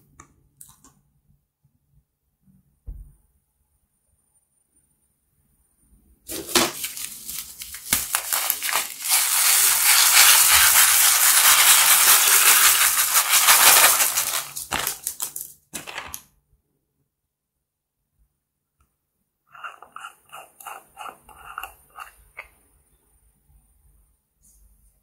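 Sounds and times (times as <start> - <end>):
beads pattering into glass dish: 7.3 - 15.5.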